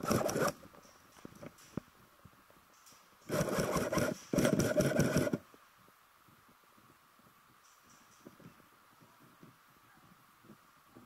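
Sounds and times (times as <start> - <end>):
airsoft gun firing bursts: 3.3 - 5.4.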